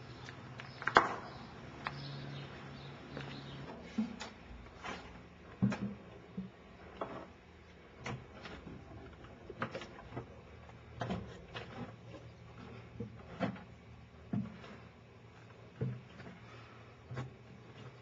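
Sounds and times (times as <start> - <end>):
footsteps walking: 0.1 - 5.2.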